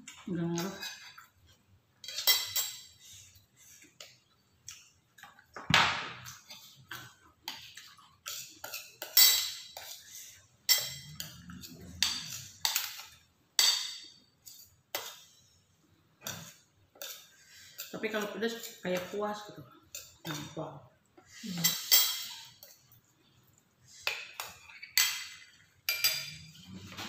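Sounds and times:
spoons clinking on ceramic plates: 2.0 - 3.0, 6.4 - 10.1, 10.7 - 15.4, 16.2 - 19.2, 21.5 - 22.9, 24.0 - 27.0.

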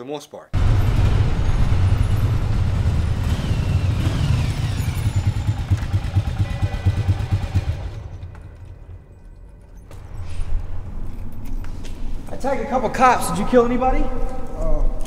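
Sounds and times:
motorcycle engine running: 0.6 - 8.8.

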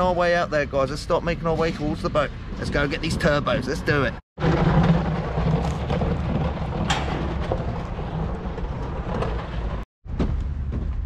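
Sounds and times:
wind buffeting microphone: 1.1 - 9.8.

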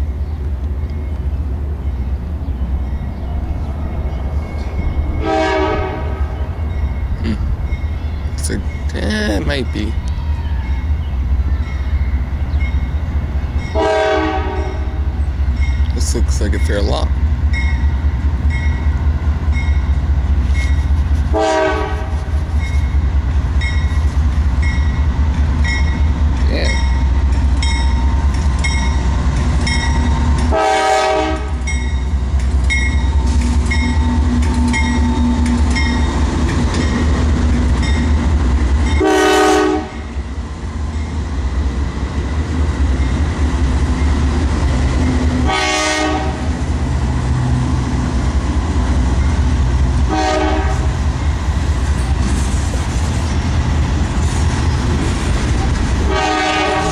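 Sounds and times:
diesel locomotive engine rumble: 0.0 - 56.9
crossing bell ringing: 2.8 - 21.0, 22.5 - 40.2, 40.9 - 41.3, 49.1 - 49.5
train horn blasts: 5.2 - 6.5, 13.7 - 15.2, 21.2 - 22.4, 30.5 - 31.6, 39.0 - 40.2, 45.4 - 46.6, 50.0 - 51.0, 56.0 - 56.9.

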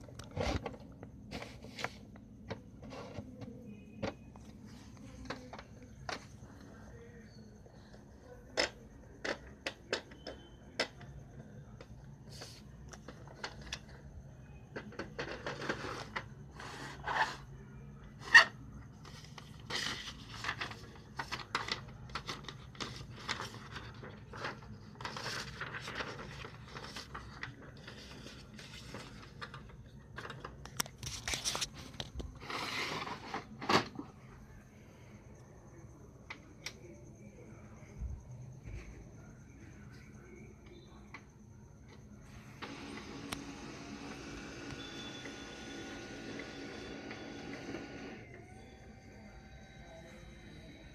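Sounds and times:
paper rustling and sliding: 0.2 - 2.2, 19.0 - 34.0.

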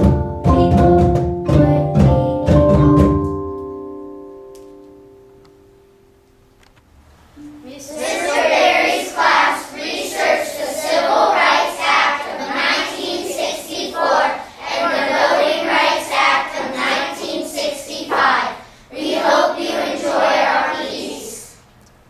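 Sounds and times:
children singing: 7.6 - 21.6.

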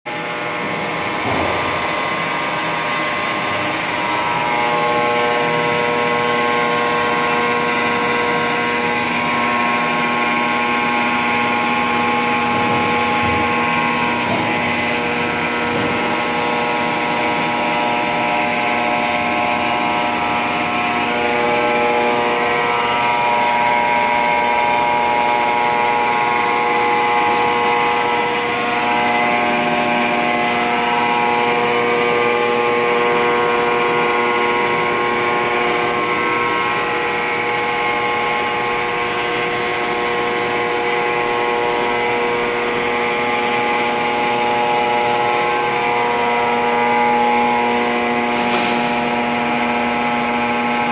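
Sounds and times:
lathe running with humming gears: 0.1 - 50.9.

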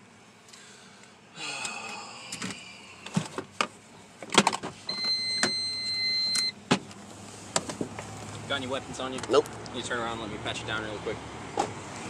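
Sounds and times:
car warning beep: 4.9 - 6.6.

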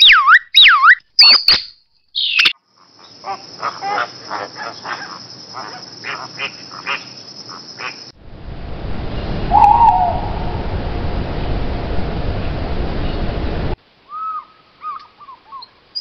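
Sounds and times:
owl hooting: 9.5 - 10.7.

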